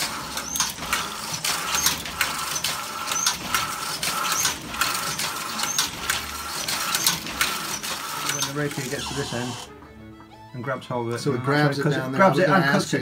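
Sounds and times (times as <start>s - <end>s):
loom clacking: 0.0s - 9.0s
high squeaks of moving parts: 0.3s - 1.0s, 1.6s - 3.6s, 4.2s - 6.0s, 6.6s - 9.5s.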